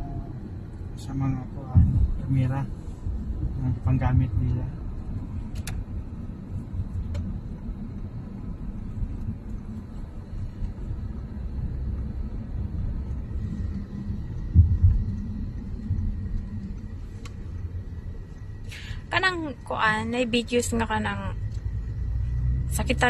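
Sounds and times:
car cabin road rumble: 0.0s - 23.0s
low thump: 1.7s - 2.2s, 14.5s - 15.2s.

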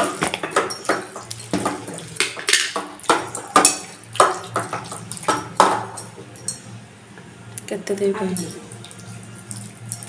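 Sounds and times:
bangles clinking against bowl: 6.0s - 6.7s.

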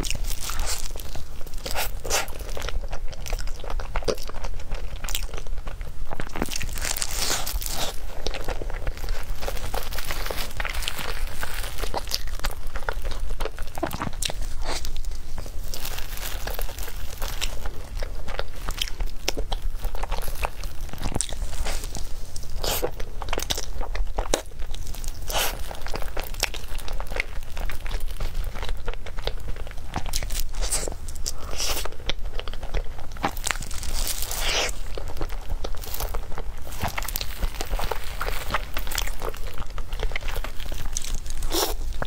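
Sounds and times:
chewing soft cake: 0.0s - 42.0s
plastic gloves crinkling: 0.0s - 42.0s.

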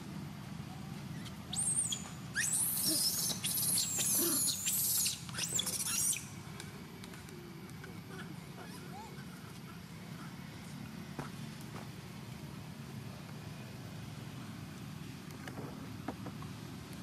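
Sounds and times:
monkey screaming shrill squeals: 1.1s - 6.3s.

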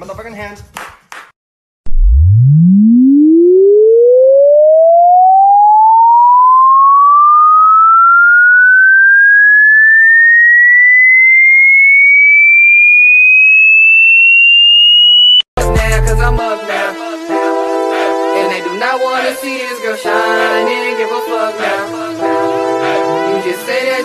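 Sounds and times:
rising sine-wave tone: 1.9s - 15.5s.

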